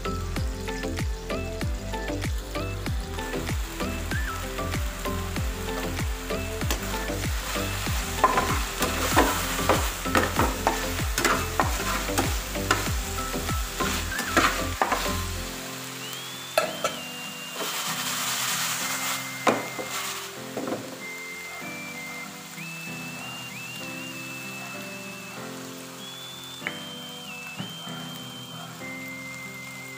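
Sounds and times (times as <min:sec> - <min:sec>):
meat sizzling in a frying pan: 0:00.0 - 0:29.9
metal spatula scraping a pan: 0:08.0 - 0:15.4.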